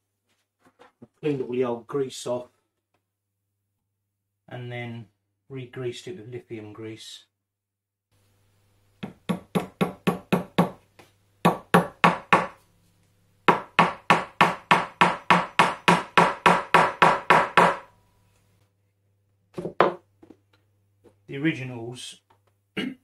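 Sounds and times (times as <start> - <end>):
hammer driving nails into wood: 13.5 - 17.9.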